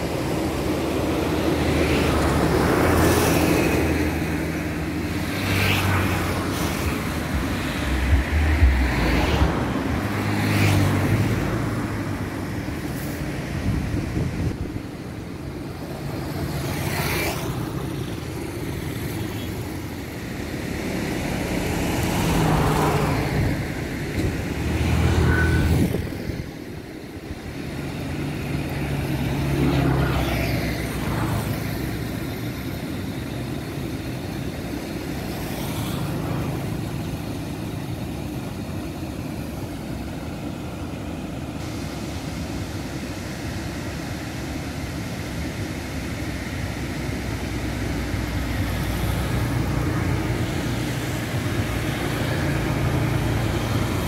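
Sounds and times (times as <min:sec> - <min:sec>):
steady rushing background noise: 0:00.0 - 0:54.0
vehicles driving past: 0:00.0 - 0:54.0.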